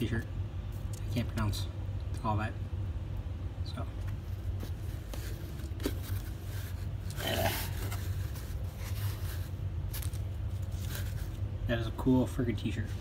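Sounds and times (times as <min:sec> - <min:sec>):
steady low hum: 0:00.0 - 0:13.0
fabric rustling: 0:04.2 - 0:11.4.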